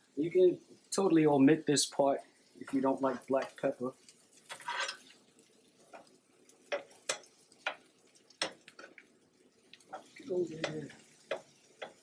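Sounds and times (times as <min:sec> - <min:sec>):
metal spatula scraping a griddle: 0:04.4 - 0:05.2.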